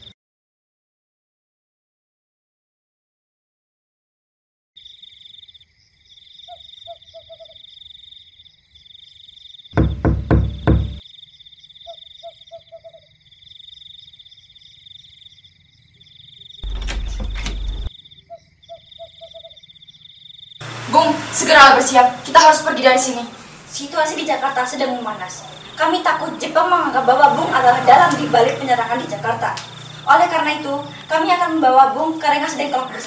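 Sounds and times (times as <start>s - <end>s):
crickets chirping: 4.8s - 33.0s
frogs croaking: 4.8s - 33.0s
knocks on a door: 9.8s - 11.0s.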